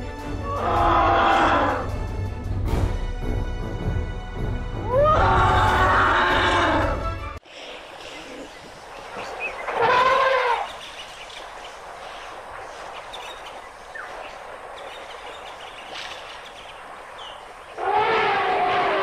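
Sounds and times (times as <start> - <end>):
elephant trumpeting: 4.9 - 7.0, 9.7 - 10.8, 17.8 - 19.0
faint bird chirps: 7.6 - 17.8.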